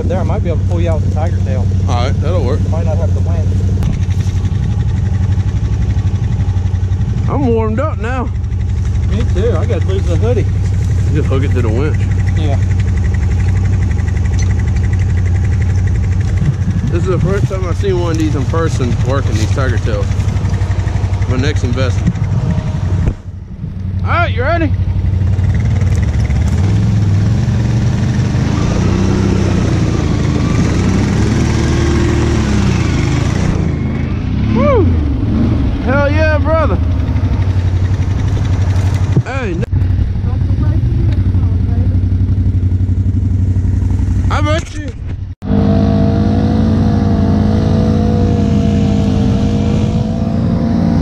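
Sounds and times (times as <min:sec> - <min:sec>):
atv engines revving under load: 0:00.0 - 0:51.0.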